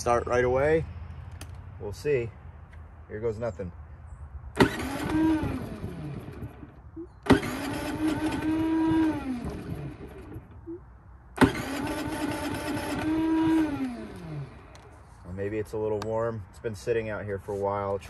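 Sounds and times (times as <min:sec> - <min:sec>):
generator electric starter cranking: 0:04.6 - 0:10.6, 0:11.4 - 0:14.9.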